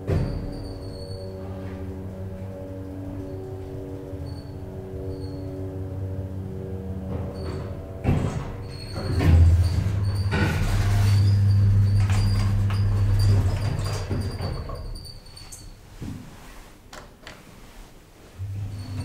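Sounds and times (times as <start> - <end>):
low hum: 0.0 - 8.4, 18.4 - 19.0
elevator doors sliding open: 0.0 - 15.8, 18.4 - 19.0.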